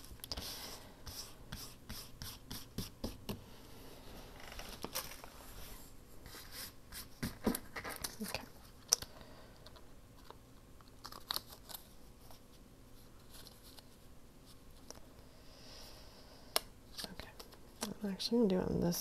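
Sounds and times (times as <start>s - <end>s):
paper crinkling and rustling: 4.4s - 5.6s, 7.2s - 9.0s, 10.2s - 14.9s.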